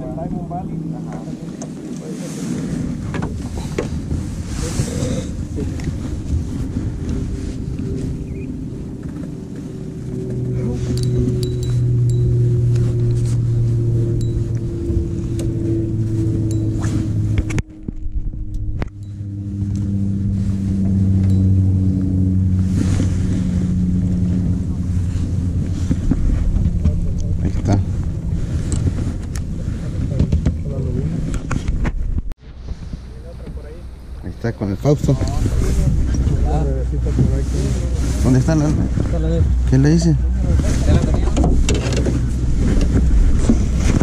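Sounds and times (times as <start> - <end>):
boat motor humming: 0.0 - 44.0
wind rumbling on microphone: 0.0 - 44.0.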